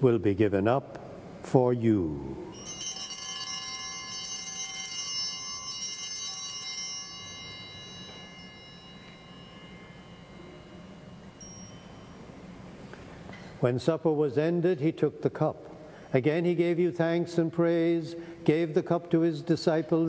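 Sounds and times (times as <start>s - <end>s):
small altar bells ringing: 2.5s - 13.2s.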